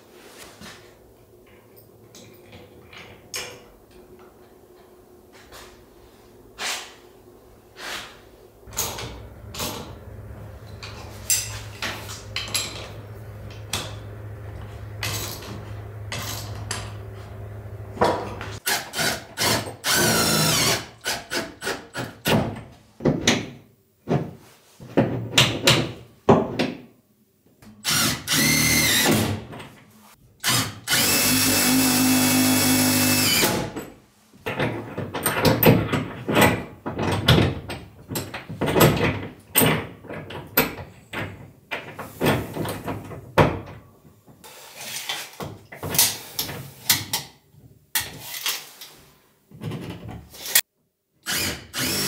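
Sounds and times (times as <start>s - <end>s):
low steady hum: 0.1s - 18.6s
knocks and handling clatter: 8.7s - 17.4s, 33.7s - 44.4s
cordless drill running: 27.8s - 29.1s, 30.4s - 33.6s, 51.3s - 52.0s.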